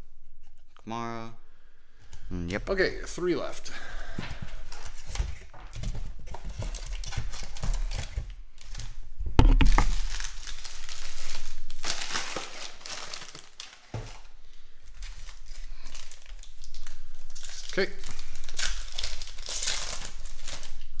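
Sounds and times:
card wrapper crinkling and tearing: 4.6 - 9.0, 9.6 - 21.0.

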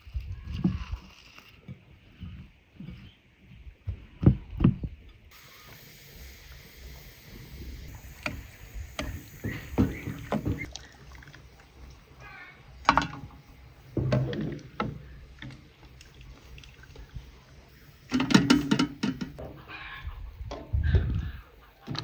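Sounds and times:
liquid sloshing: 9.8 - 12.1, 12.9 - 17.4.

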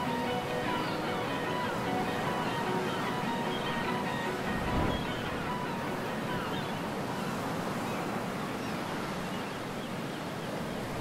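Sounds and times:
ocean waves breaking: 0.0 - 11.0.

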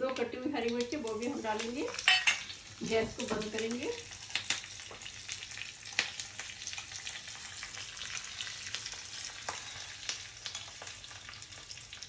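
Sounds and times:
seeds sizzling in hot oil: 0.1 - 12.0.

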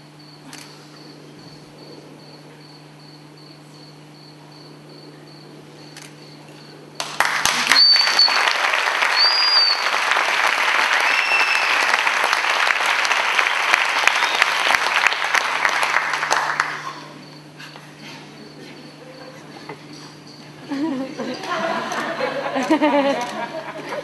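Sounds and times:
audience applauding: 7.0 - 17.2
high whistles: 7.4 - 12.4, 13.4 - 15.0.

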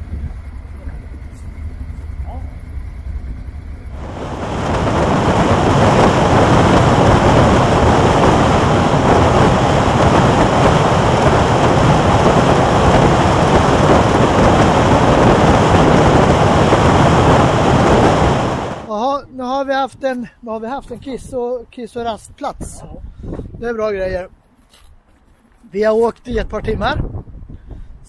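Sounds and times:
wind rushing over microphone: 3.5 - 19.3, 22.4 - 24.3, 26.3 - 28.0.

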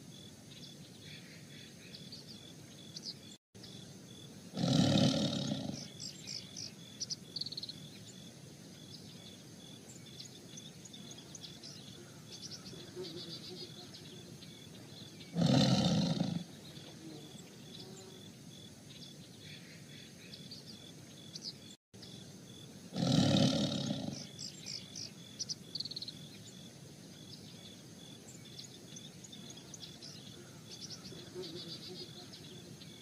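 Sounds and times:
small birds chirping: 0.0 - 33.0
tiger roaring: 4.6 - 5.9, 15.3 - 16.5, 22.9 - 24.3.

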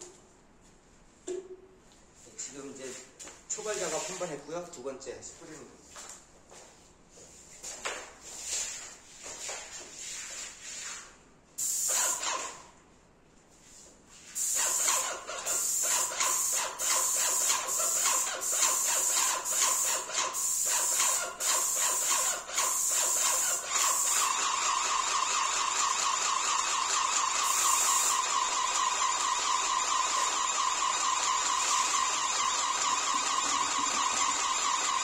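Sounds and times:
paint spray gun hissing: 11.6 - 12.6, 14.4 - 35.0.

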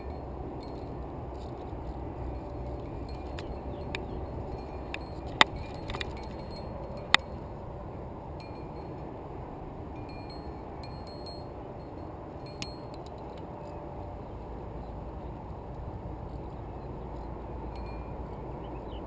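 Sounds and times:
carabiners clinking: 0.0 - 7.4.

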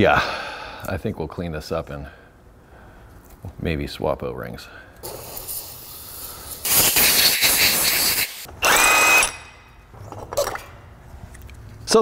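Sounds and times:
aerosol spray hiss: 5.0 - 8.5.

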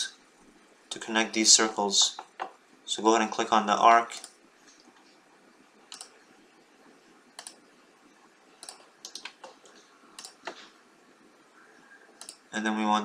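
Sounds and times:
computer mouse clicking: 4.2 - 4.9, 5.9 - 6.2, 7.4 - 7.6, 8.6 - 10.7, 12.1 - 12.5.

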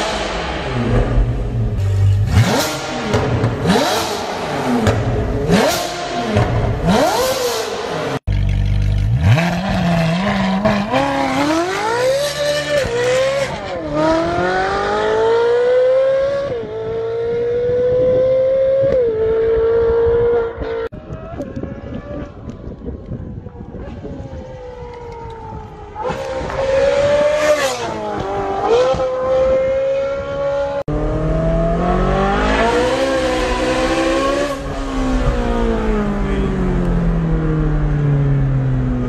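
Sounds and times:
sports car engine revving: 0.0 - 20.8
car accelerating through upshifts: 2.3 - 8.2, 9.1 - 20.9, 26.0 - 39.0.

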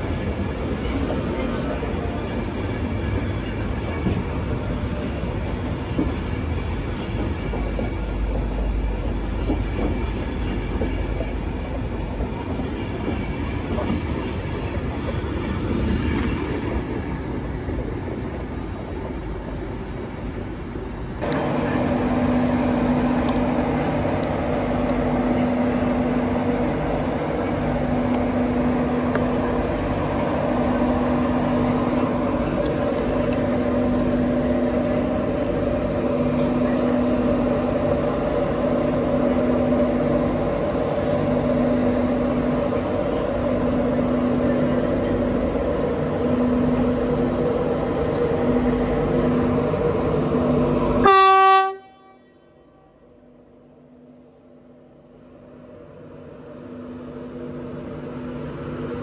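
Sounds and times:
train engine humming: 0.0 - 59.0
train horn blast: 51.0 - 52.9.

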